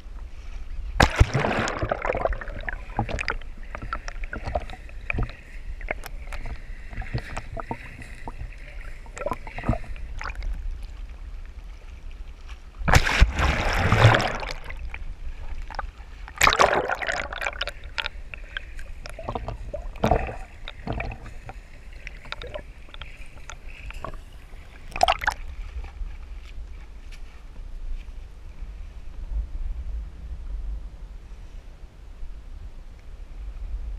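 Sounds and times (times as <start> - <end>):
water sloshing and splashing: 0.4 - 27.4.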